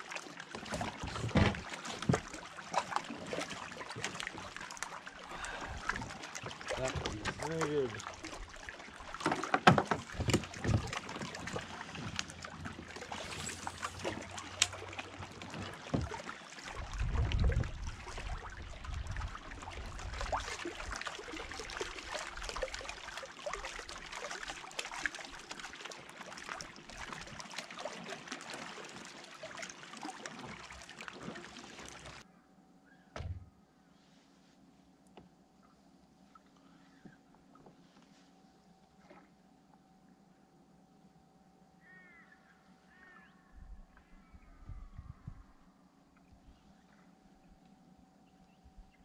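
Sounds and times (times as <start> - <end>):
water washing around kayak: 0.0 - 32.2
knocks against hull: 0.7 - 2.3, 9.2 - 11.4, 33.2 - 33.5.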